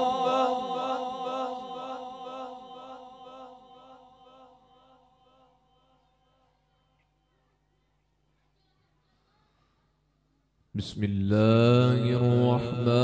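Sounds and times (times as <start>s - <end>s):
man reciting with echo: 0.0s - 6.0s, 10.7s - 13.0s.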